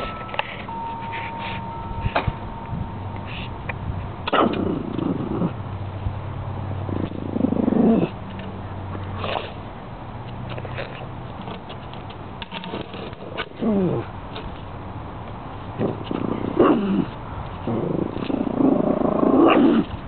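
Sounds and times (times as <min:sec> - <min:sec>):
puppy whining growls: 0:04.3 - 0:05.6, 0:06.9 - 0:08.2, 0:17.7 - 0:19.9.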